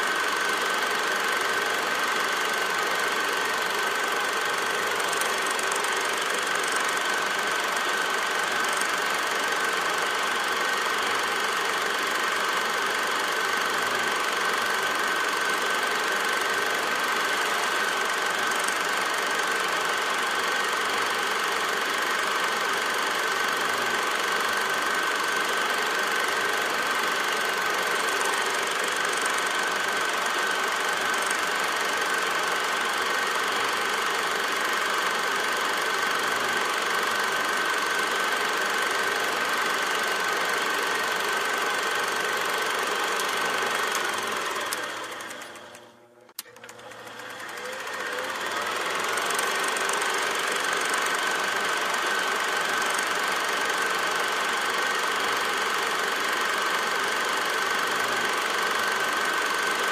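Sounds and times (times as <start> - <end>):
machine clattering and whining: 0.0 - 59.9
click: 43.2 - 47.4.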